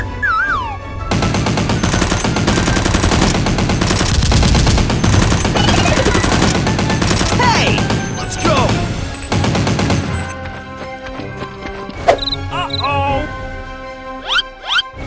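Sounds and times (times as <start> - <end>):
machine-gun fire: 1.1 - 10.3.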